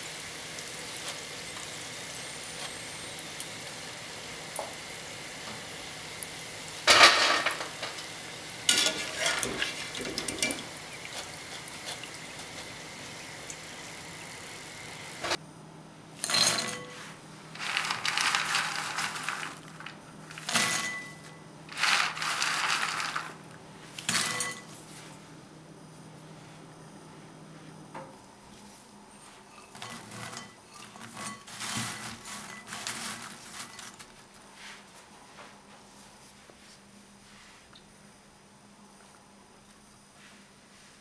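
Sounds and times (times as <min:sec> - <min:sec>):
oil sizzling: 0:00.0 - 0:15.4, 0:17.5 - 0:23.6
strainer clattering: 0:06.9 - 0:08.0, 0:08.7 - 0:12.7, 0:17.6 - 0:23.4, 0:24.0 - 0:24.7, 0:29.6 - 0:34.1
fried dough rattling into glass bowl: 0:17.6 - 0:23.4.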